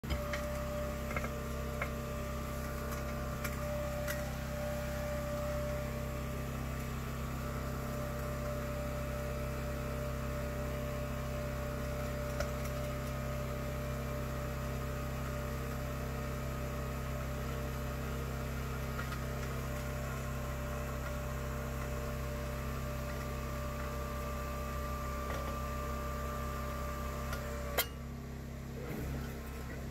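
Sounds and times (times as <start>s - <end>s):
hydraulic pump humming: 0.0s - 13.6s.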